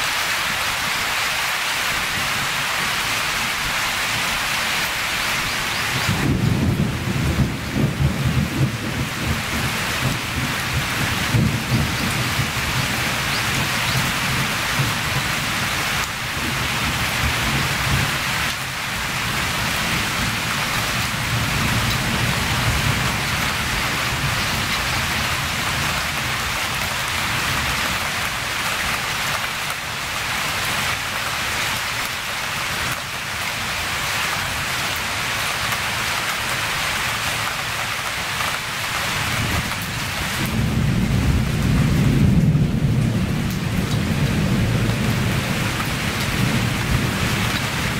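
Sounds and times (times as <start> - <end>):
heavy rain: 0.0 - 47.9
low thunder rumble: 6.0 - 15.7, 39.2 - 47.9.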